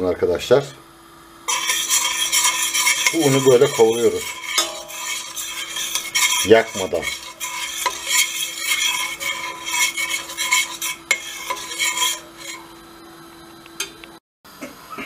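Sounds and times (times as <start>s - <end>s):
metal spoon scraping a pot: 1.5s - 12.8s.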